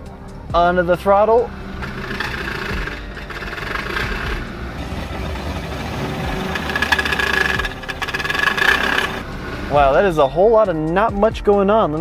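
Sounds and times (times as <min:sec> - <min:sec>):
engine running: 0:00.0 - 0:10.7
steady high whine: 0:00.3 - 0:10.2
rapid rattle: 0:01.1 - 0:10.1.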